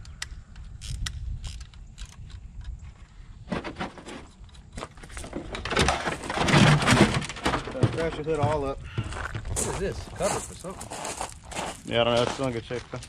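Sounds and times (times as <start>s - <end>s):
plastic panel scraping and rattling: 3.4s - 9.1s
car parts clicking and clattering: 3.5s - 8.7s.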